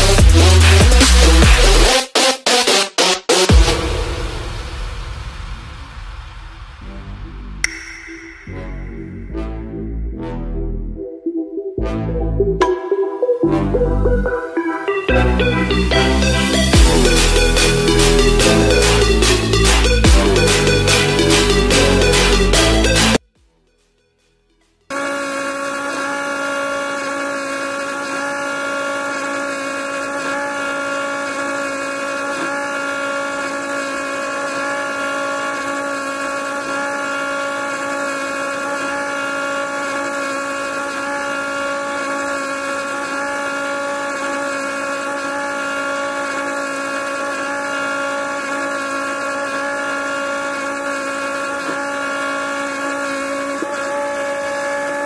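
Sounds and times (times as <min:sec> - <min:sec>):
small motor whining: 0:00.0 - 0:02.0, 0:14.3 - 0:23.2, 0:24.9 - 0:55.0.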